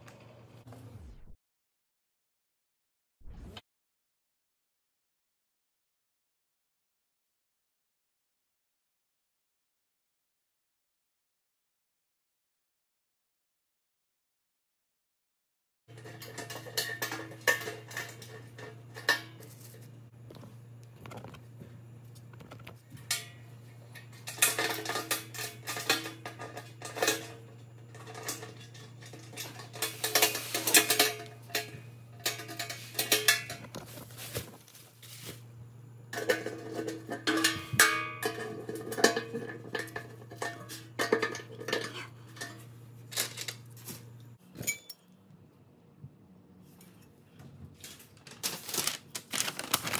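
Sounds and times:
sheet metal clinking and clattering: 15.9s - 19.9s, 23.0s - 33.8s, 36.1s - 43.7s
steady low hum: 15.9s - 44.5s.

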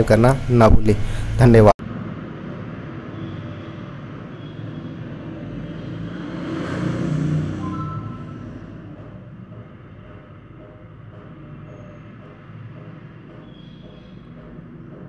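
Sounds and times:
passing vehicle rumbling: 0.0s - 15.0s.

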